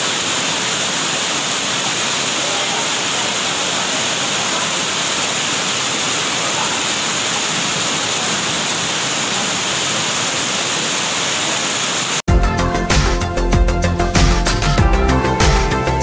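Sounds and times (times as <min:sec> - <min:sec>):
floodwater rushing and churning: 0:00.0 - 0:12.2.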